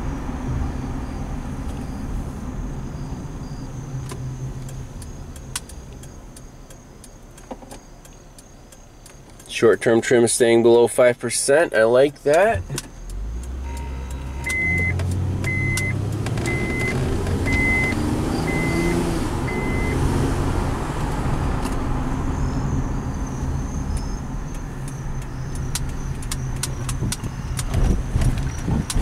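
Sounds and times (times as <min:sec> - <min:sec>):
car engine accelerating: 0:00.0 - 0:08.3, 0:12.1 - 0:29.0
short high chime beeps: 0:13.6 - 0:15.0.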